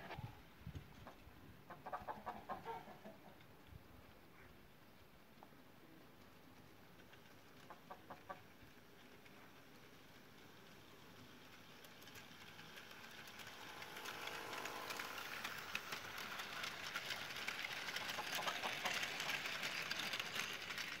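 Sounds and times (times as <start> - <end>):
model train wheels clattering: 5.4 - 21.0
small electric motor humming: 12.8 - 19.9.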